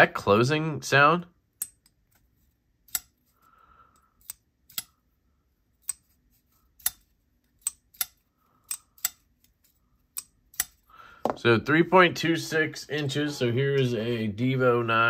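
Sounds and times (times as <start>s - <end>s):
folding knife clicking open and shut: 2.9s - 3.2s, 4.2s - 5.0s, 6.8s - 9.2s.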